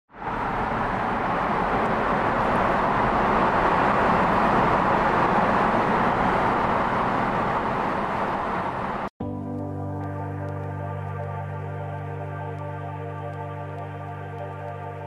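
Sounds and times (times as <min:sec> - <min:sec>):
car road and tyre noise: 0:00.1 - 0:09.1.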